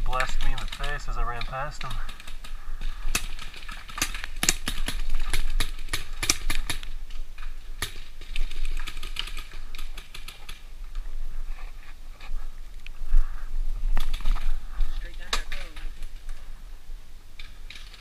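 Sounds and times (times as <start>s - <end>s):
paintball markers firing: 0.1s - 6.9s.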